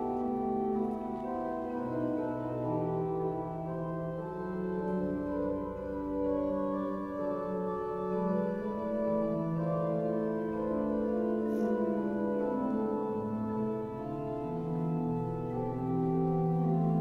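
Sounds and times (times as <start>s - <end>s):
organ playing sustained chords: 0.0s - 17.0s.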